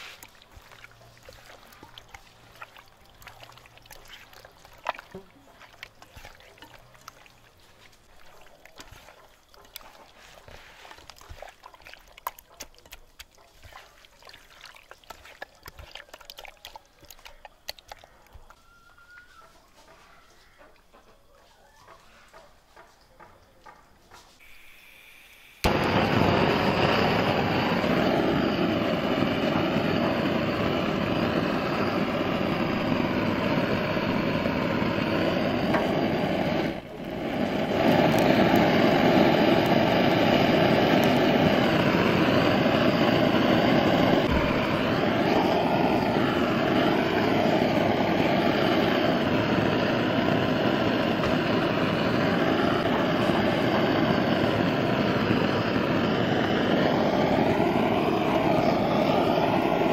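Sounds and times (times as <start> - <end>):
blowtorch roaring: 25.6 - 59.9.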